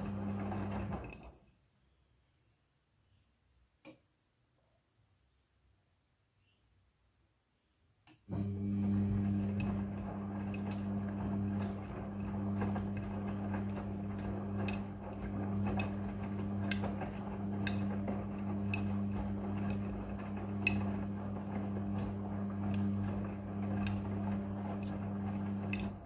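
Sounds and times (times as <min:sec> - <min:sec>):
washing machine motor hum: 0:00.0 - 0:01.3, 0:08.3 - 0:26.0.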